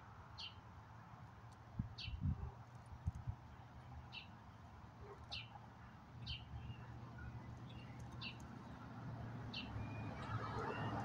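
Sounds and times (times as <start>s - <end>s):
songbird chirping: 6.2s - 11.0s.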